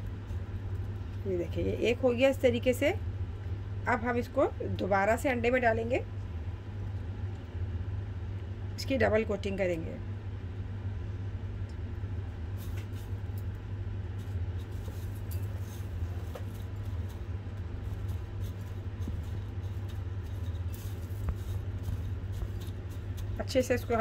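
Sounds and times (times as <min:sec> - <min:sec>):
steady low hum: 0:00.0 - 0:24.0
cornflakes crunching and rustling: 0:14.2 - 0:24.0.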